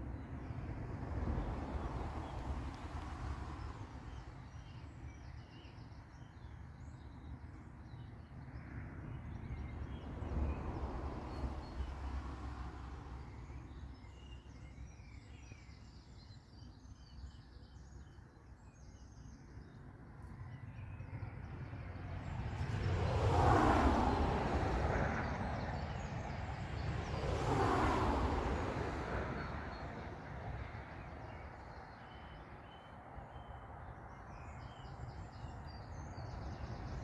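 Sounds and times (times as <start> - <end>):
vehicles passing: 0.0 - 5.2, 8.7 - 16.0, 21.4 - 37.0.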